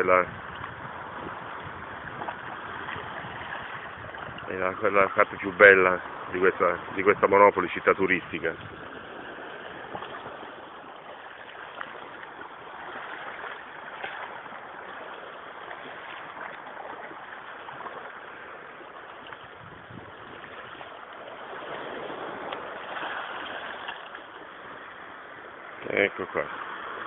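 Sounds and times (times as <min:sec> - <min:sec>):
water washing over rocks: 0:00.0 - 0:27.0.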